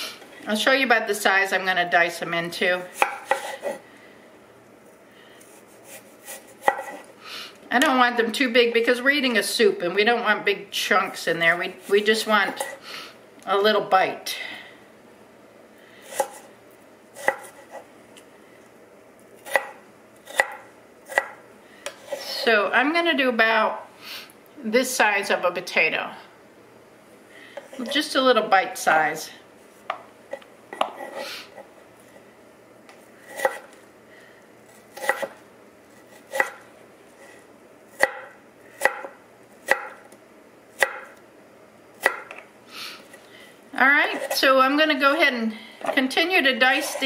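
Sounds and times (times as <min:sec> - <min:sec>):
knife chopping on wooden board: 0:03.0 - 0:03.8, 0:06.6 - 0:07.0, 0:17.2 - 0:17.8, 0:19.5 - 0:21.4, 0:35.0 - 0:35.3, 0:36.3 - 0:36.6, 0:38.0 - 0:39.1, 0:39.7 - 0:40.0, 0:40.8 - 0:41.1, 0:42.0 - 0:42.4.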